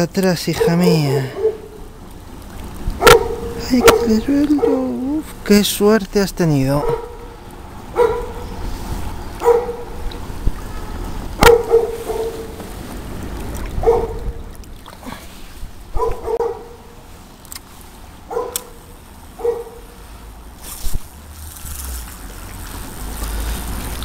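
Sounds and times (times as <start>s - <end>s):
dog barking: 0.6s - 1.8s, 3.0s - 5.0s, 6.8s - 7.3s, 7.9s - 8.5s, 9.4s - 9.9s, 11.4s - 12.6s, 13.8s - 14.2s, 15.9s - 16.9s, 18.3s - 18.8s, 19.4s - 20.0s
shallow stream rushing: 9.5s - 16.1s, 20.5s - 24.0s.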